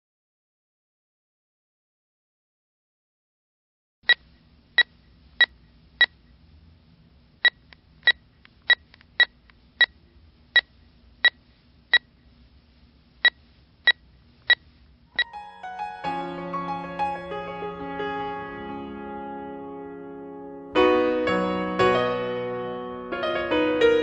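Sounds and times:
faint low hum: 4.1 - 15.3.

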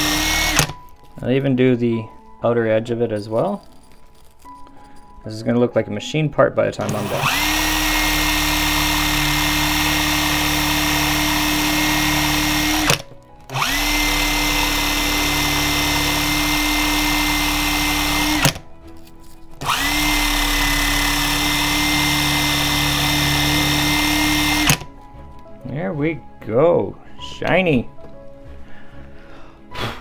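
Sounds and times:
cordless drill spinning: 0.0 - 0.8, 6.8 - 18.6, 19.5 - 24.9.

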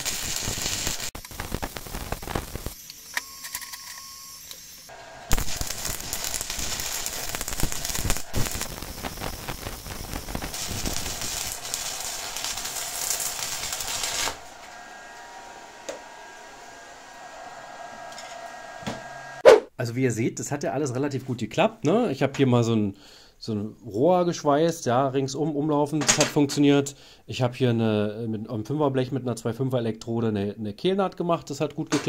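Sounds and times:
welding arc crackling hiss: 0.0 - 19.4.

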